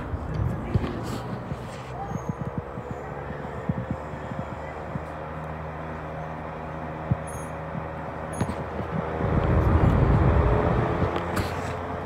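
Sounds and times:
box fan humming: 0.0 - 12.0
air blowing on microphone: 8.8 - 11.8.

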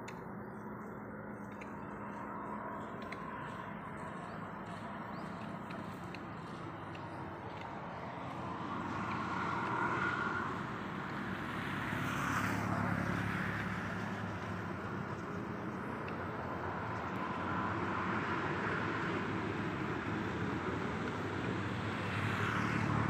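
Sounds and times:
road traffic passing: 0.0 - 23.0.

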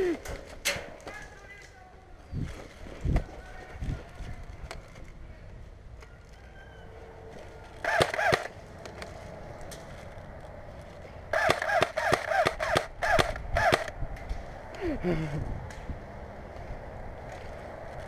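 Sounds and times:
airsoft rifle shots: 7.8 - 8.6, 11.3 - 14.0.

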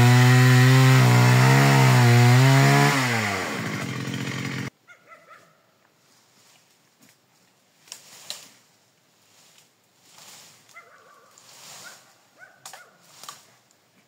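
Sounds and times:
brush rustling: 6.0 - 14.0
branches snapping: 7.8 - 8.6, 12.6 - 13.5.

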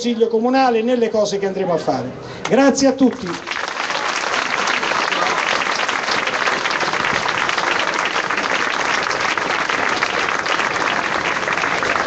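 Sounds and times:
crowd applauding: 3.1 - 12.0.

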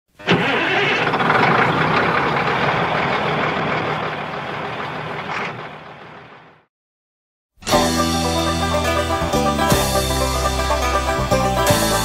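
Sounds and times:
vehicle engine starting and running: 0.1 - 6.7.

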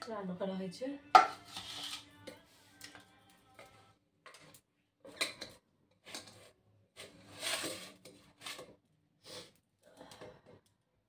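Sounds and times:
scooping rice from steel pot: 1.2 - 2.1, 5.1 - 8.8.

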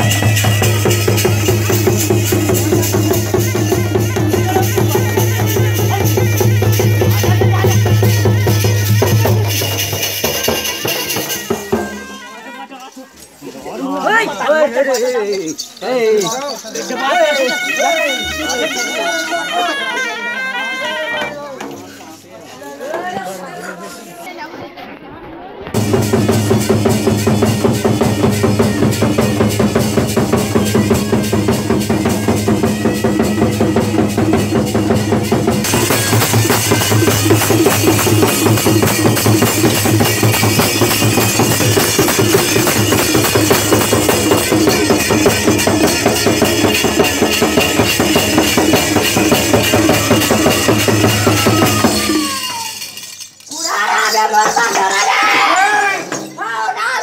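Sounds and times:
music with fast heavy drum beat: 0.0 - 12.1, 25.8 - 52.7.

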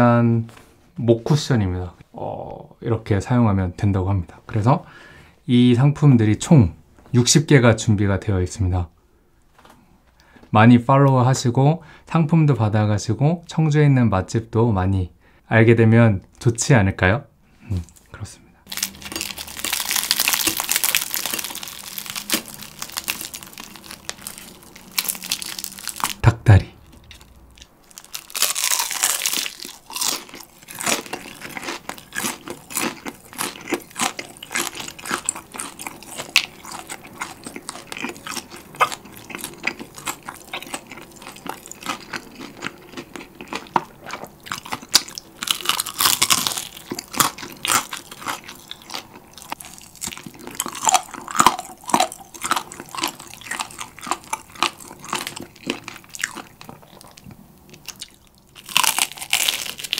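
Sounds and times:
crunchy chicken being chewed: 18.7 - 26.2, 26.8 - 59.9.

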